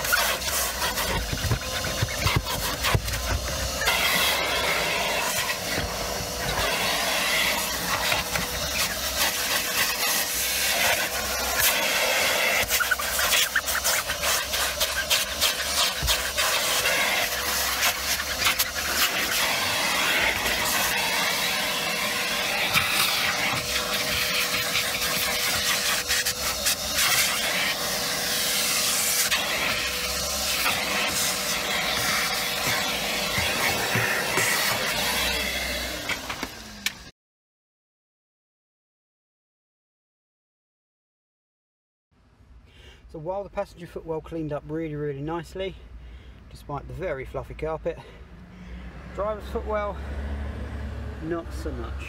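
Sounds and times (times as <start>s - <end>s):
vacuum cleaner running: 0.0s - 37.1s.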